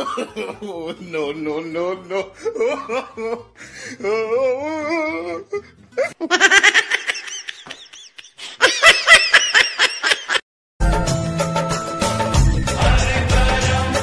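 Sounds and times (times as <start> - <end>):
wavering vocal sound: 4.0 - 5.6
high-pitched laughter: 6.0 - 10.4.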